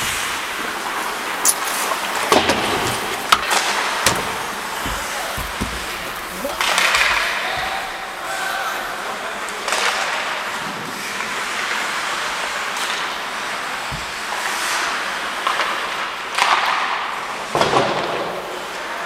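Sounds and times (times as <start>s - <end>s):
skate blades scraping ice: 0.0s - 19.0s
sticks and puck hitting: 0.2s - 8.8s, 9.4s - 19.0s.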